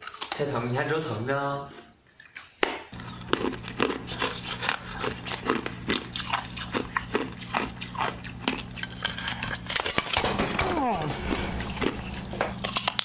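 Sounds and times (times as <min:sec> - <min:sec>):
ice crunching while chewed: 0:00.0 - 0:00.4, 0:01.8 - 0:10.2, 0:11.4 - 0:13.0
low steady hum: 0:03.0 - 0:13.0.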